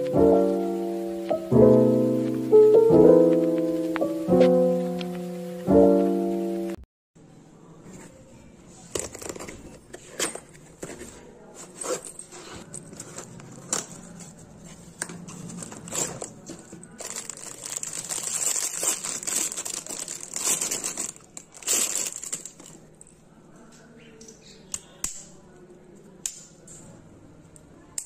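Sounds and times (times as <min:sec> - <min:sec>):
plastic bag crinkling: 0:15.4 - 0:23.2
cardboard wrapping tearing: 0:15.5 - 0:22.7.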